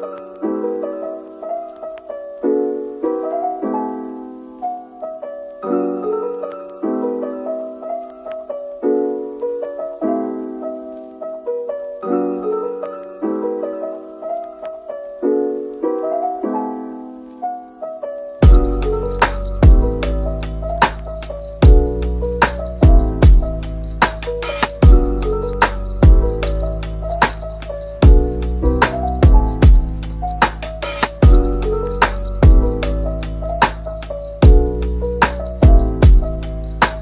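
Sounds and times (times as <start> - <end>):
piano piece: 0.0 - 37.0.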